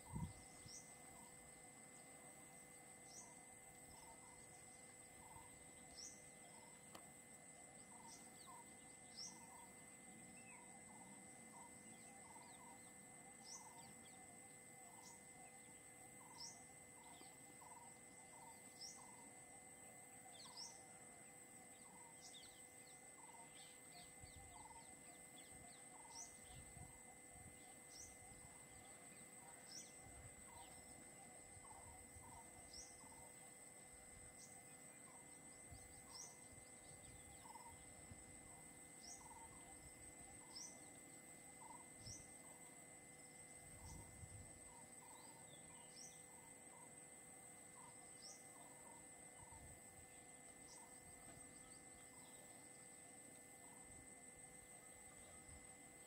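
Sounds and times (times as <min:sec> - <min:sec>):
high insect buzz: 0:00.0 - 0:56.0.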